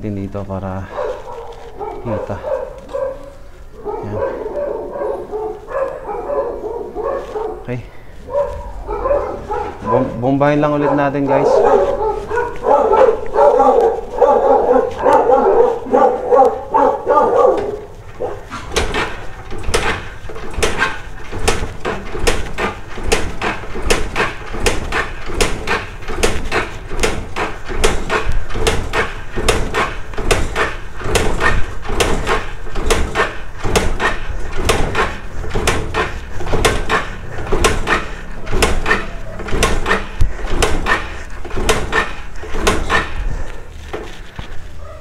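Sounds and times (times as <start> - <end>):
motorcycle engine cranking: 11.6 - 44.8.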